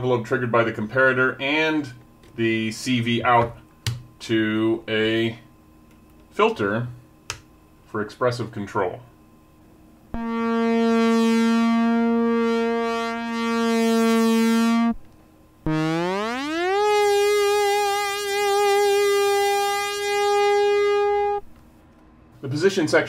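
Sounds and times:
analog synthesizer notes: 0:10.2 - 0:15.0, 0:15.7 - 0:21.5.

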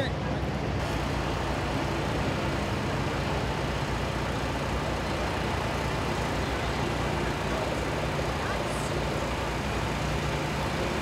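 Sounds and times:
heavy vehicle rolling noise: 0:00.0 - 0:11.0
truck engines humming: 0:00.0 - 0:11.0.

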